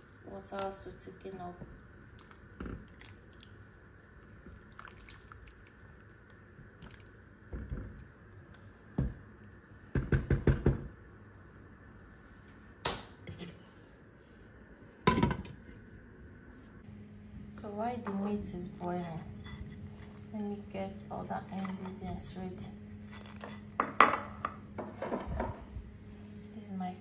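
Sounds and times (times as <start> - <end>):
soup simmering: 1.9 - 7.4.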